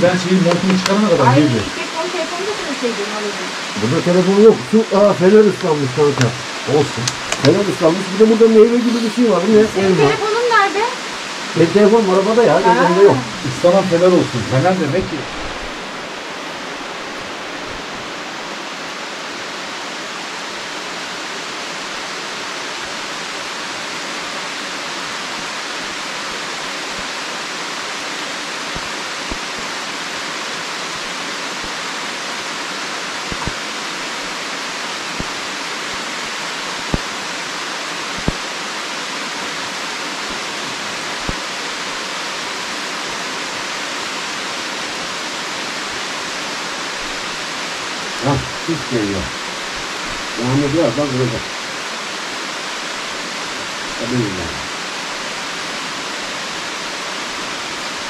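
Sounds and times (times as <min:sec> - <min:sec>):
rain falling: 0:00.0 - 0:58.0.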